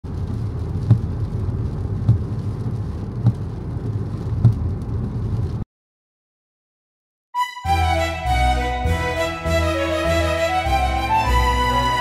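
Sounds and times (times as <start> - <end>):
rain: 0.0 - 5.6, 8.8 - 12.0
steady low rumble: 0.1 - 5.6.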